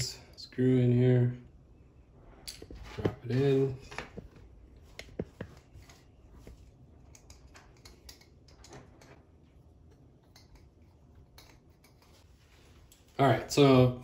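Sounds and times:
screwdriver ticking and scraping: 0:07.0 - 0:09.2.

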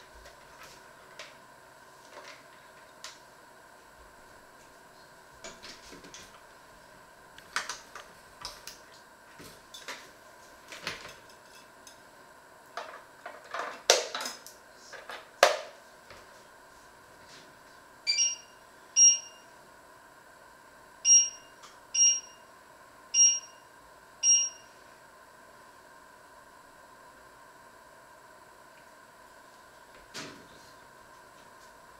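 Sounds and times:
electronic appliance beeps: 0:18.1 - 0:19.6, 0:21.0 - 0:22.5, 0:23.1 - 0:24.8.

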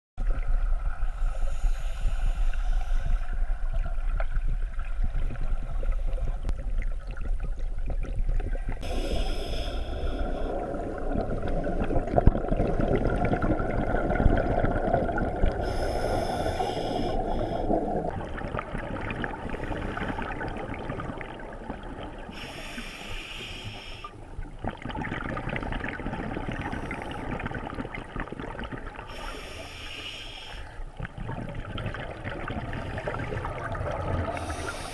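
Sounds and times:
scuba regulator hissing inhalation: 0:01.3 - 0:03.3, 0:08.8 - 0:11.0, 0:15.5 - 0:18.1, 0:22.3 - 0:24.2, 0:29.1 - 0:30.8, 0:34.3 - 0:34.9
bubbling exhalations underwater: 0:07.0 - 0:22.3, 0:24.6 - 0:29.0, 0:31.0 - 0:34.9.

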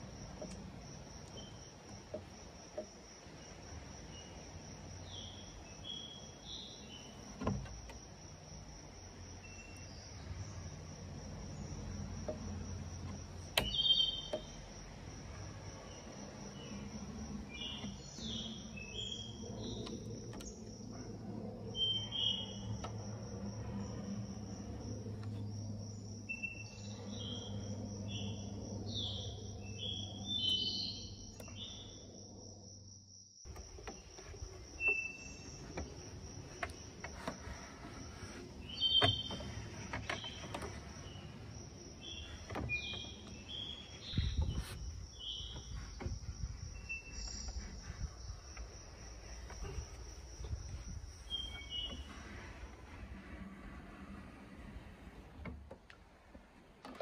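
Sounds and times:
high insect trill: 0:00.0 - 0:54.5
low hum: 0:14.2 - 0:56.8.

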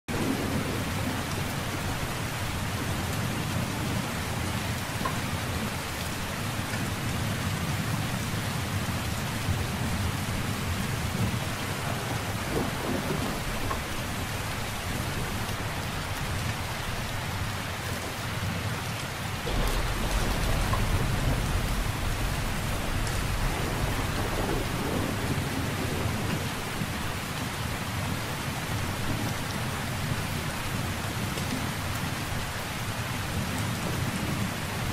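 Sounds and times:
steady rain falling: 0:00.1 - 0:34.9
low roll of thunder: 0:09.4 - 0:16.4, 0:19.4 - 0:27.6.

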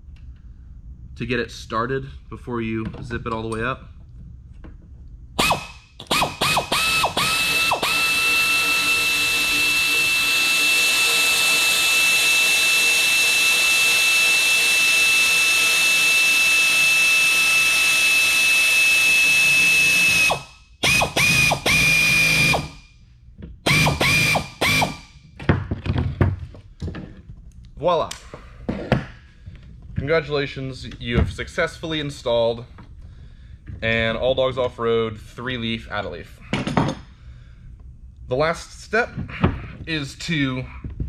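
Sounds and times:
power tool motor whine: 0:05.4 - 0:22.8, 0:23.7 - 0:25.0.

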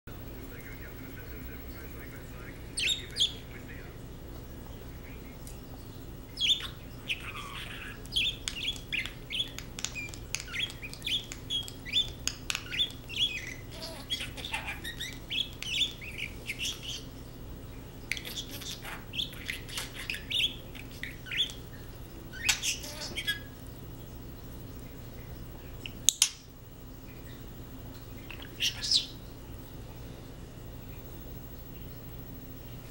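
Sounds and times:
budgerigar chirping: 0:02.8 - 0:03.5, 0:06.4 - 0:17.1, 0:18.1 - 0:21.6, 0:22.3 - 0:23.6, 0:28.3 - 0:29.2.

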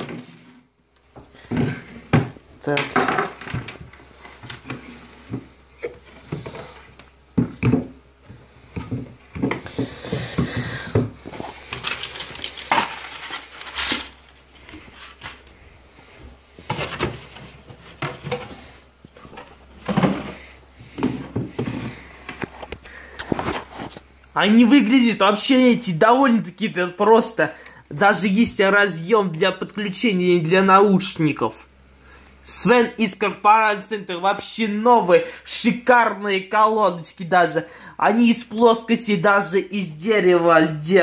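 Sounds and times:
items knocking on wooden desk: 0:01.5 - 0:06.6, 0:07.4 - 0:11.4, 0:19.2 - 0:22.5
packaging rustling: 0:11.2 - 0:15.6.

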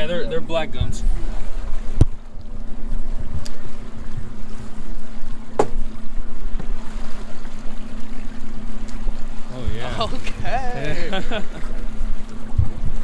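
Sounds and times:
wind buffeting microphone: 0:00.0 - 0:08.3, 0:09.2 - 0:13.0
boat engine idling: 0:00.0 - 0:13.0.

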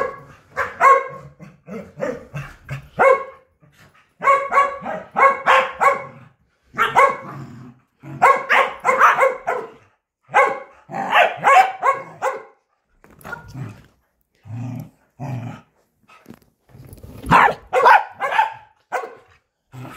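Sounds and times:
dog barking: 0:00.0 - 0:01.4, 0:03.0 - 0:03.5, 0:04.2 - 0:07.3, 0:08.1 - 0:12.6, 0:17.3 - 0:19.4.

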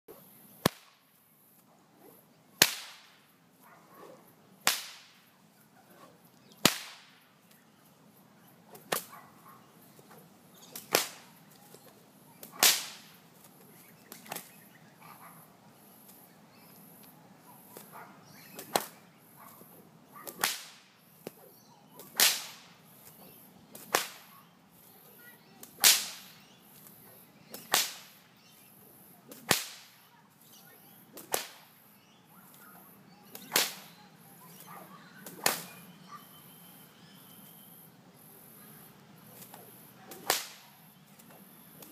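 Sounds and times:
whip cracking: 0:00.6 - 0:01.0, 0:02.0 - 0:03.3, 0:04.0 - 0:05.3, 0:06.0 - 0:07.2, 0:08.7 - 0:09.2, 0:10.0 - 0:11.4, 0:12.4 - 0:13.2, 0:14.1 - 0:14.6, 0:18.6 - 0:19.0, 0:20.2 - 0:21.4, 0:22.0 - 0:24.4, 0:25.6 - 0:26.4, 0:27.5 - 0:28.2, 0:29.3 - 0:30.0, 0:31.1 - 0:31.8, 0:33.3 - 0:35.8, 0:39.3 - 0:41.9.

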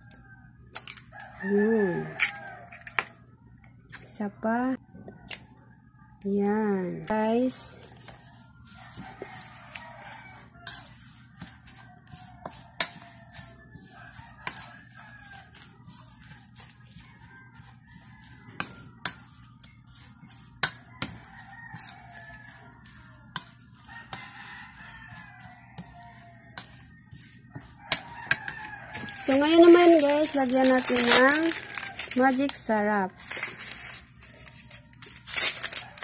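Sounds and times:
metal spoon scraping ceramic bowl: 0:07.6 - 0:32.4.

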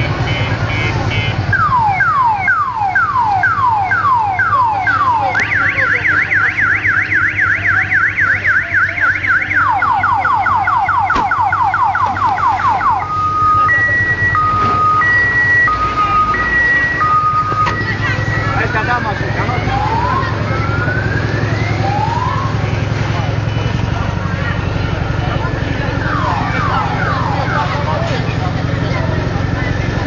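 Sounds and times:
truck engine running: 0:00.0 - 0:30.0
electronic alarm siren: 0:01.1 - 0:22.8, 0:25.4 - 0:28.1.

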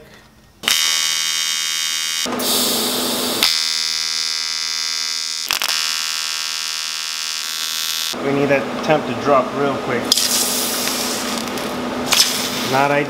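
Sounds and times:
welding arc buzzing: 0:00.6 - 0:08.3, 0:10.0 - 0:13.0.

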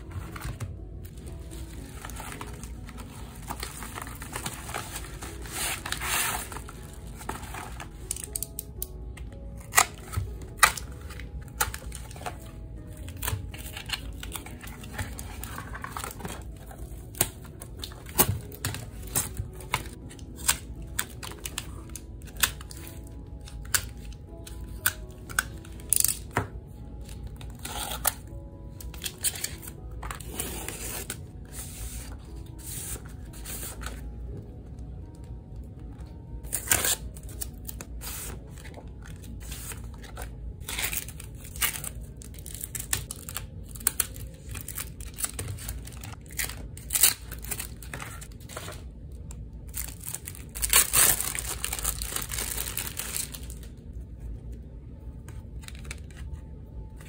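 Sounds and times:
soft background music: 0:00.0 - 0:57.0
paper crinkling: 0:49.7 - 0:53.7.

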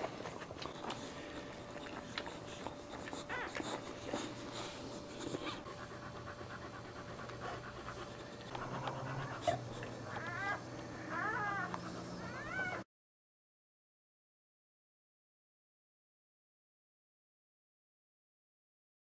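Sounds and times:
wet licking: 0:00.0 - 0:09.9
dog panting: 0:00.0 - 0:12.8
puppy squeaking: 0:03.1 - 0:03.8, 0:09.0 - 0:12.8.

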